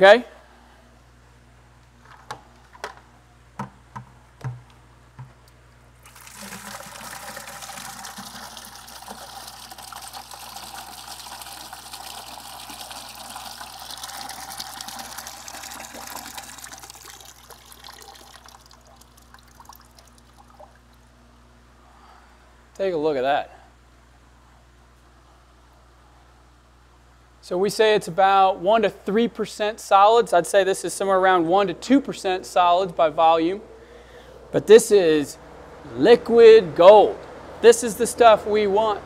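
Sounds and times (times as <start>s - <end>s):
water pouring into plastic bucket: 6.0s - 20.9s.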